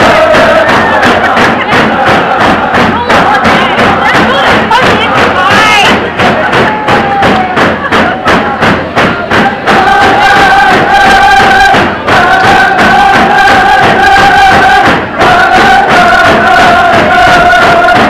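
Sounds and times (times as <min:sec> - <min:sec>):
men singing in unison: 0:00.0 - 0:05.2, 0:09.3 - 0:18.0
hand drums beating: 0:00.0 - 0:18.0.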